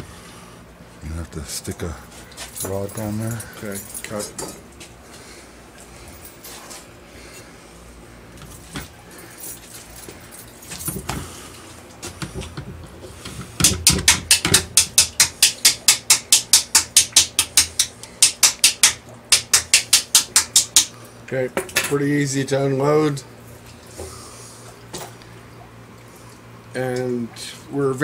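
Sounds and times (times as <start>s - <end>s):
pliers tapping on plastic pipe: 13.3s - 20.9s.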